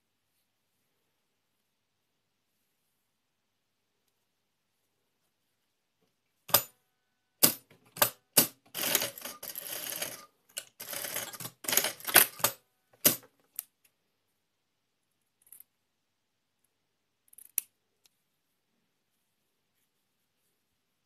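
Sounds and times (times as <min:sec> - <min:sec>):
sewing machine clacks: 0:07.4 - 0:13.3
sewing machine stitching: 0:07.4 - 0:13.3.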